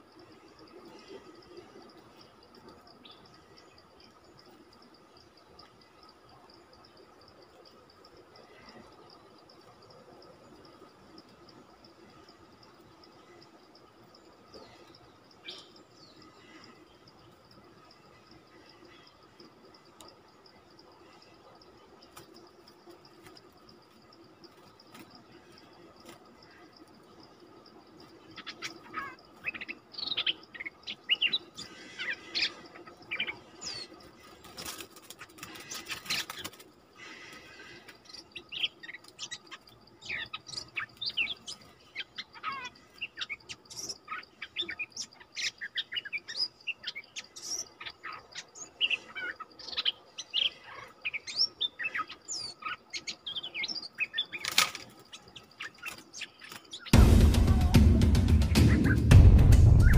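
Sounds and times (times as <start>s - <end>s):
wing flapping: 34.2s - 36.7s, 54.4s - 55.0s
birds chirping and whistling: 58.4s - 59.9s.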